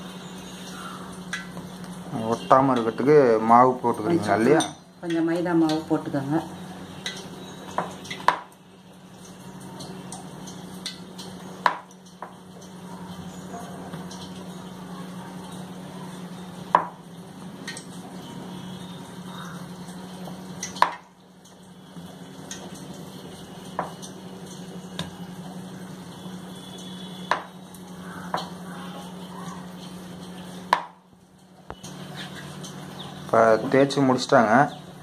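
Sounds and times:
rolling pin knocking on board: 0:11.6 - 0:11.8, 0:16.7 - 0:16.9, 0:27.3 - 0:27.5, 0:30.7 - 0:31.0.

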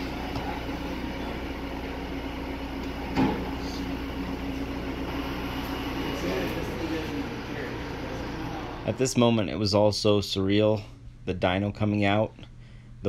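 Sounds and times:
low engine drone: 0:00.0 - 0:09.6.

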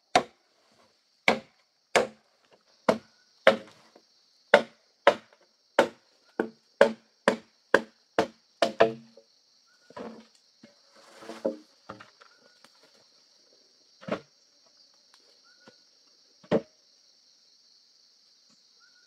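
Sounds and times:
machete chopping bamboo: 0:00.1 - 0:00.4, 0:01.2 - 0:02.2, 0:02.9 - 0:03.8, 0:04.5 - 0:09.1.

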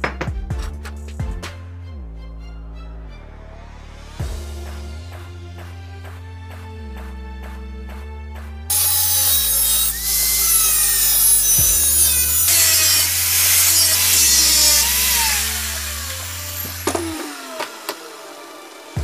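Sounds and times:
angle grinder cutting sheet metal: 0:08.7 - 0:19.0
grinder disc spinning down: 0:08.7 - 0:19.0.

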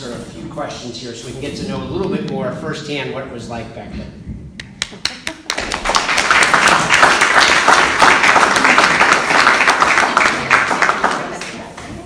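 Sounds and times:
audience applauding: 0:05.0 - 0:11.7.

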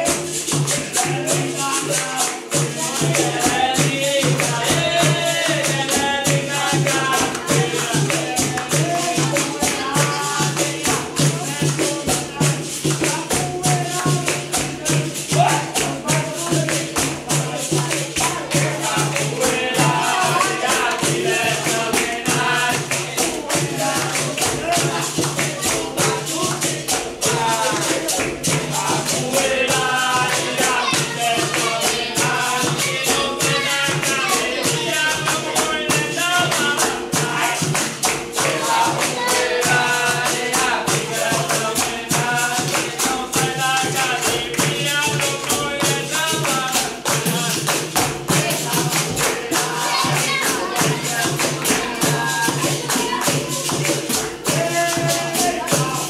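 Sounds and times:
group of voices singing: 0:00.0 - 0:56.0
pandeiro and percussion beat: 0:00.0 - 0:56.0.

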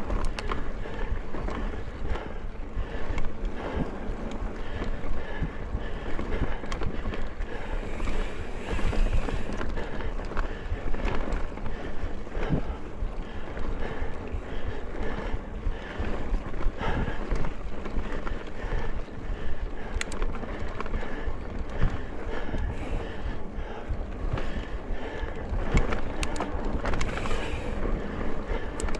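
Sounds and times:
bike rattles and knocks: 0:00.0 - 0:28.9
wind buffeting microphone: 0:00.0 - 0:28.9
tyre rumble on dirt trail: 0:20.2 - 0:28.8.

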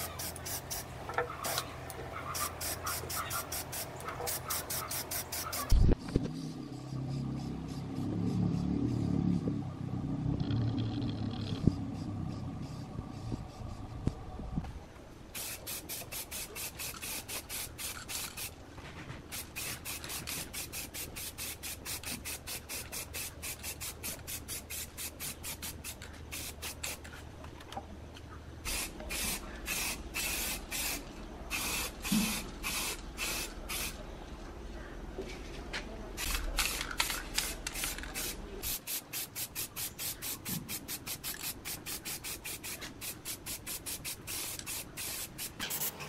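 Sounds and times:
spray paint can hissing: 0:00.0 - 0:01.6, 0:02.3 - 0:05.9, 0:15.4 - 0:18.6, 0:19.3 - 0:27.1, 0:28.7 - 0:34.0, 0:36.2 - 0:46.0
low rumble: 0:06.2 - 0:14.9.

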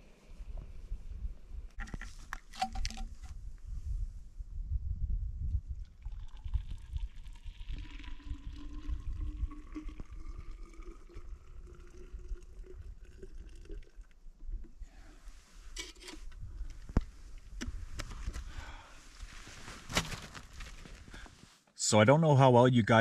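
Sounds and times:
handling noise: 0:01.7 - 0:03.4
water pouring into bottle: 0:01.8 - 0:03.3, 0:05.8 - 0:14.8.

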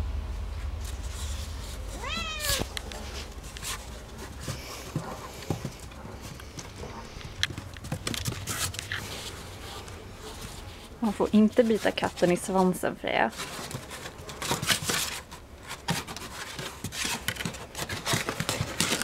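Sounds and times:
cat meowing: 0:02.0 - 0:02.7.

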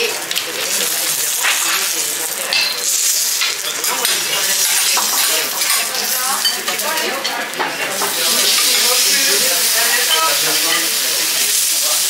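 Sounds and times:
vegetables sizzling on griddle: 0:00.0 - 0:12.0.

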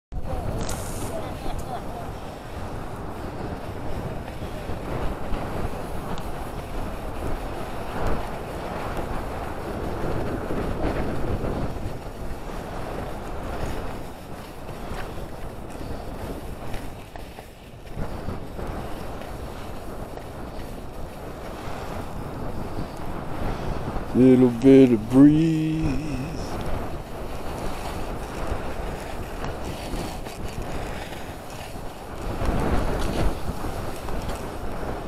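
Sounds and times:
wind on microphone: 0:00.1 - 0:35.0
skis running over snow: 0:00.2 - 0:35.0.

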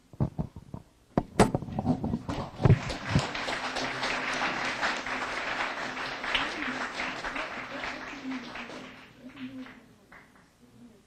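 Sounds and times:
audience applause: 0:02.3 - 0:10.4.

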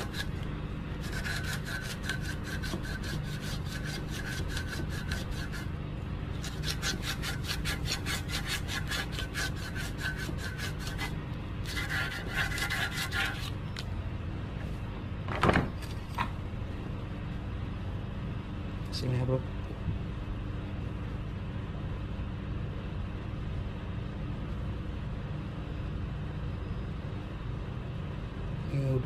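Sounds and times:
sandpaper rasping on steel rod: 0:00.0 - 0:00.4, 0:01.0 - 0:05.7, 0:06.4 - 0:13.6.

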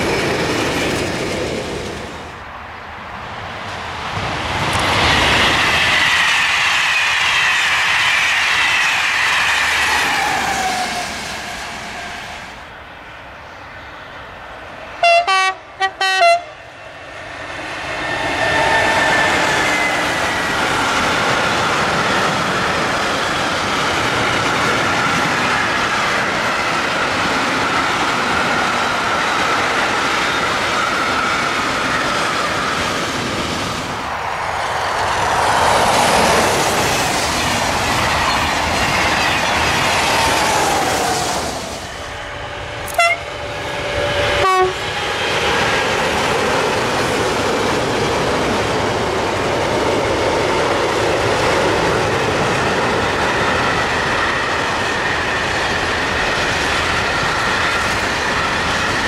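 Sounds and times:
freight train rolling past: 0:00.0 - 0:59.0
train horn blasts: 0:15.0 - 0:16.6, 0:42.8 - 0:43.4, 0:44.3 - 0:44.8.

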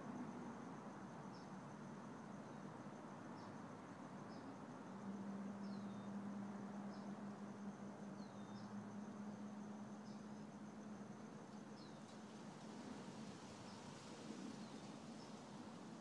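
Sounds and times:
steady hiss: 0:08.9 - 0:16.0.

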